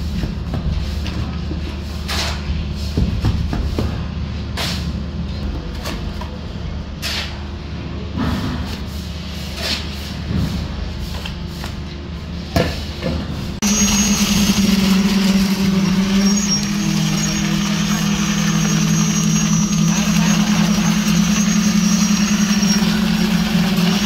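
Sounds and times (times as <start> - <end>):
shovel scraping wet mortar: 1.8 - 2.5, 7.0 - 7.4, 13.8 - 24.0
concrete pump droning: 13.5 - 24.0.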